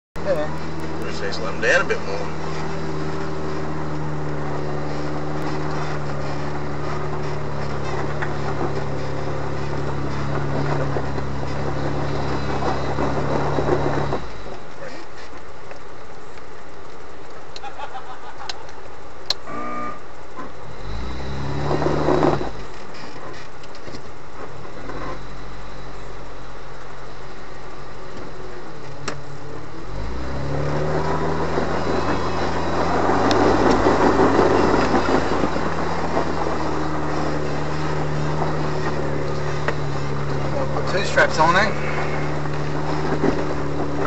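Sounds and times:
car engine revving uphill: 0:00.2 - 0:44.0
tyres crunching on loose stones: 0:00.4 - 0:17.5, 0:28.2 - 0:44.0.

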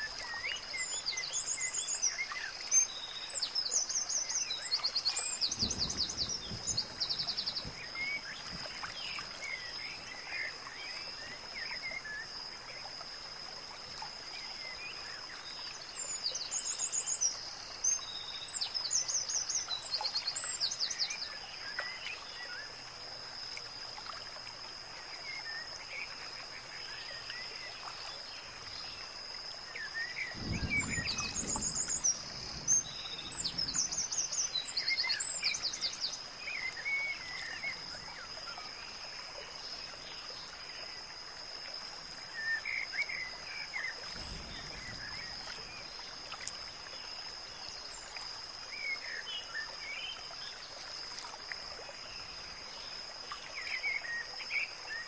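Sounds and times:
background hiss: 0:00.0 - 0:55.0
birds chirping: 0:29.8 - 0:37.8.

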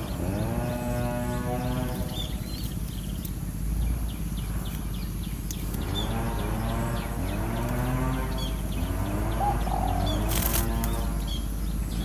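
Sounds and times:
small birds chirping: 0:00.0 - 0:12.0
dove cooing: 0:05.9 - 0:11.2.

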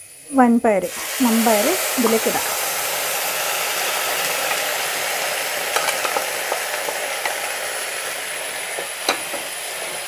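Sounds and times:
oil sizzling in a pan: 0:00.0 - 0:10.0.

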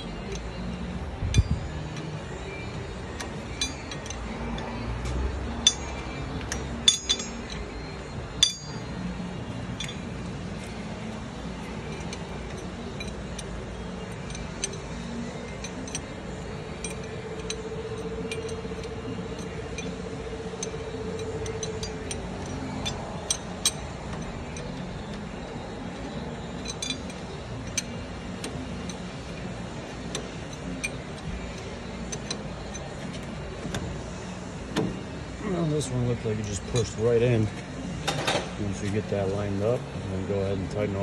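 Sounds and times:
wrench clicking and clinking: 0:00.0 - 0:04.8, 0:05.4 - 0:09.0, 0:09.6 - 0:10.8, 0:11.6 - 0:34.1.

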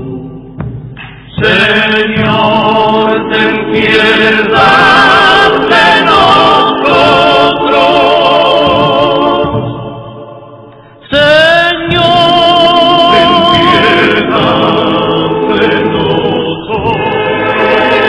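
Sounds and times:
choir singing held notes: 0:00.0 - 0:18.0.

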